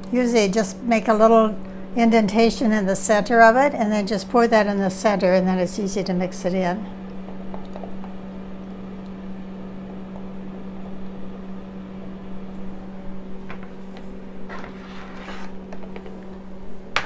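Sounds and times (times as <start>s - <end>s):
steady low hum: 0.0s - 17.0s
spoon scraping batter from cup: 14.5s - 15.7s.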